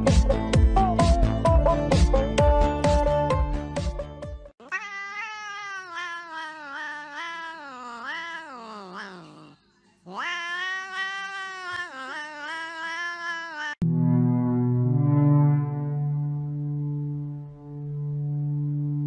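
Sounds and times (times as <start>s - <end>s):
music: 0.0s - 4.5s, 13.8s - 19.0s
cat yowling: 4.6s - 13.8s.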